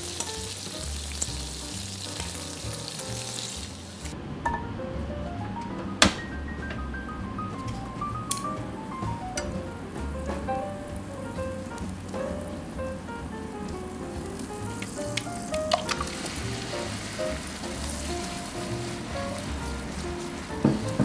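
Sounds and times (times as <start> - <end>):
butter sizzling in a pan: 0.0 - 4.1, 14.4 - 21.0
light background music: 4.4 - 21.0.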